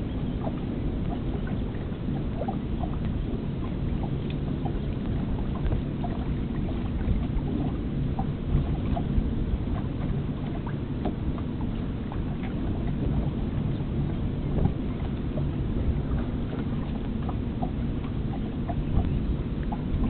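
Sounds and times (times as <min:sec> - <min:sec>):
wind and water rushing along hull: 0:00.0 - 0:20.0
light ticks: 0:04.0 - 0:06.3.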